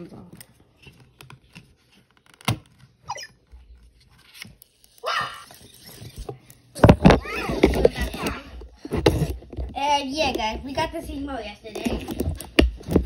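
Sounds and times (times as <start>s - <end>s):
robot electronic chirps: 3.1s - 3.4s.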